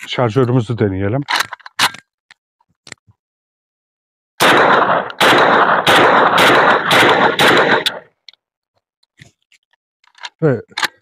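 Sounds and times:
shotgun firing rapid shots: 0:04.4 - 0:08.1.

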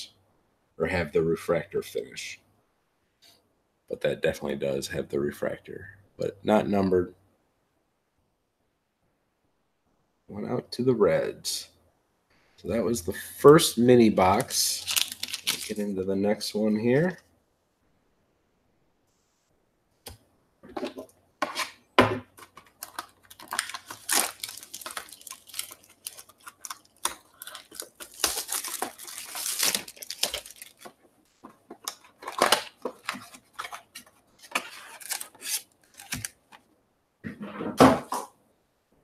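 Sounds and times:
tearing rustle of box: 0:14.8 - 0:15.8, 0:22.8 - 0:30.8, 0:32.2 - 0:36.4.

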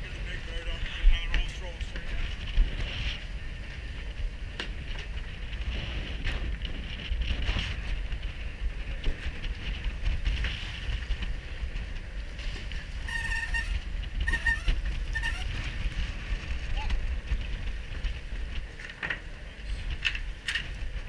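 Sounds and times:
wind buffeting microphone: 0:00.0 - 0:21.0
high squeak: 0:13.0 - 0:15.5.

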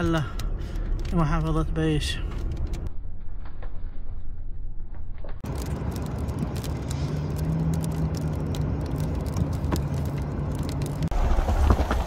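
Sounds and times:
car engine and road hum: 0:00.0 - 0:12.0
raindrops ticking on car: 0:05.4 - 0:12.0.

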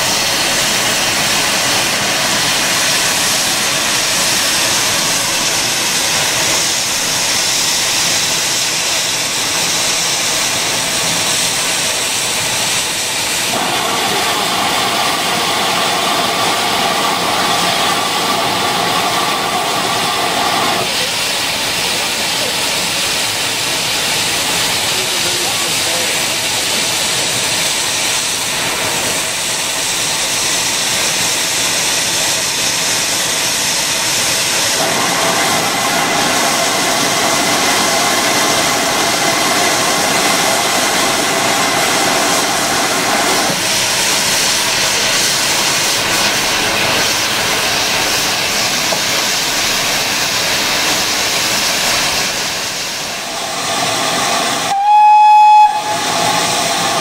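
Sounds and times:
steam hissing: 0:00.0 - 0:57.0
steam whistle blast: 0:54.6 - 0:57.0.

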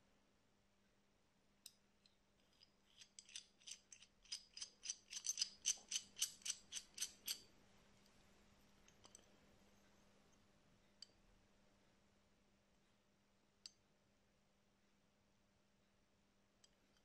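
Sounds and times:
wrench worm screw clicking: 0:02.5 - 0:07.4.

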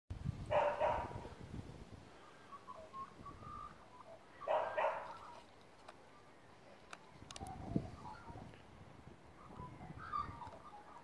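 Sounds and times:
dog barking: 0:00.5 - 0:01.3, 0:04.4 - 0:05.2.

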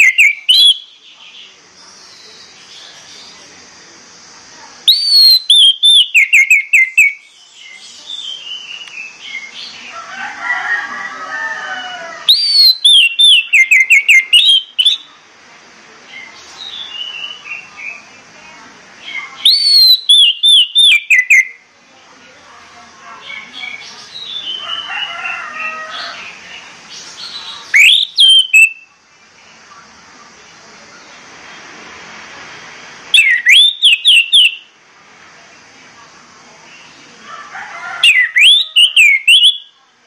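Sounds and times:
thrush whistled song: 0:00.0 - 0:00.9, 0:04.9 - 0:07.3, 0:12.3 - 0:15.1, 0:19.4 - 0:21.6, 0:27.7 - 0:28.9, 0:33.1 - 0:34.7, 0:38.0 - 0:39.8.

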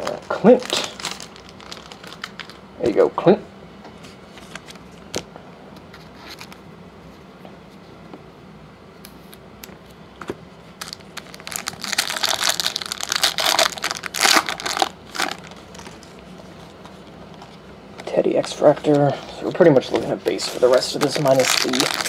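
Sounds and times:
foil wrapper tearing and crinkling: 0:00.0 - 0:02.6, 0:10.8 - 0:16.2, 0:20.3 - 0:22.0.

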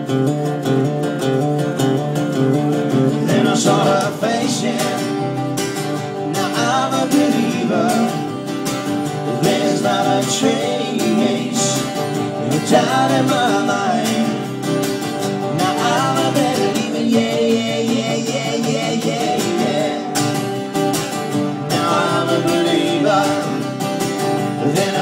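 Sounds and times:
acoustic guitars strummed: 0:00.0 - 0:25.0
man singing: 0:03.1 - 0:05.4, 0:06.0 - 0:20.5, 0:21.6 - 0:25.0.

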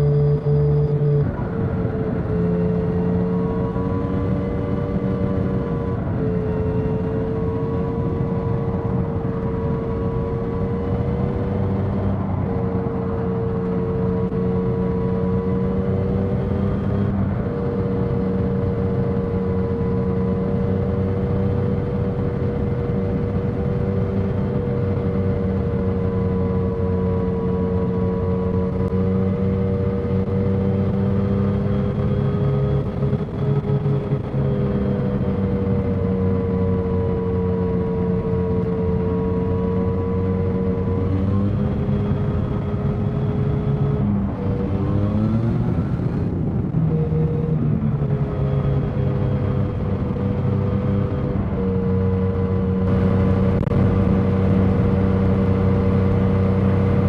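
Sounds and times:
motorcycle engine cruising: 0:00.0 - 0:57.0
rushing wind: 0:00.9 - 0:57.0.

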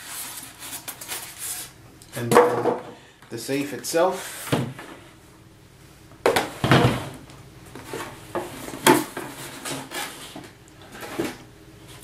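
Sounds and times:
cardboard packaging rubbing: 0:00.0 - 0:01.8.

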